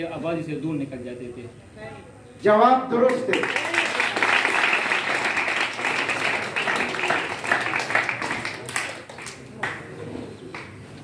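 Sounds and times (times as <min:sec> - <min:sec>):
audience clapping: 0:03.1 - 0:11.0.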